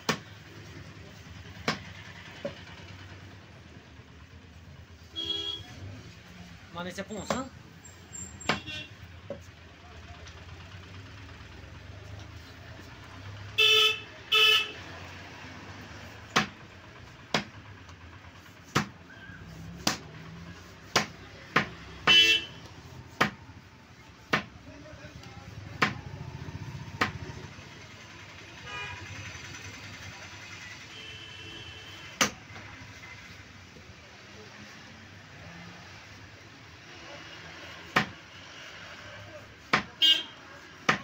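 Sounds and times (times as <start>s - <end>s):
cleaver chopping meat on wood: 0.0s - 0.3s, 1.6s - 1.9s, 16.3s - 16.6s, 17.2s - 17.6s, 18.6s - 19.0s, 19.8s - 20.2s, 20.8s - 22.2s, 23.1s - 23.4s, 24.3s - 24.6s, 25.8s - 26.0s, 27.0s - 27.2s, 37.9s - 38.2s, 39.7s - 40.0s, 40.8s - 41.0s
vehicle horn honking: 5.1s - 5.7s, 13.6s - 14.8s, 22.0s - 22.6s, 28.6s - 29.3s, 30.9s - 32.1s, 40.0s - 40.4s.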